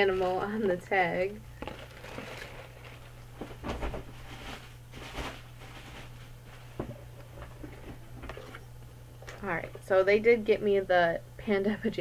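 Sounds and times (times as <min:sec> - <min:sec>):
low electrical hum: 0:00.0 - 0:12.0
tissue paper rustling: 0:01.6 - 0:06.8.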